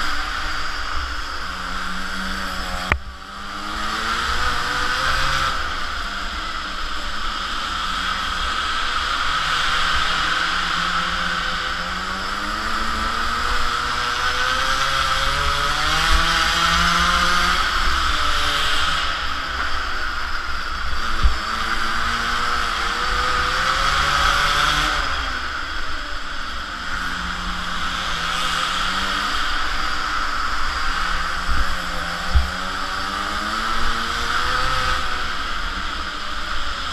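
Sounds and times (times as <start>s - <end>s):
small two-stroke engine revving: 0.0s - 36.9s
wind rumble on microphone: 31.2s - 33.0s.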